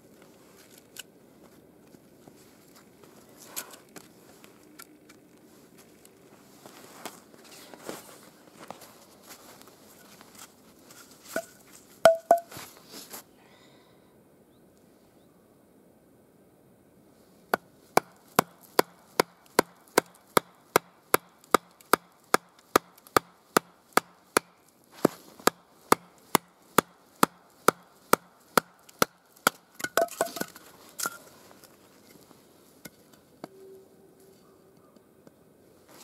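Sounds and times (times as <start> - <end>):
log splitting: 17.5 - 32.2.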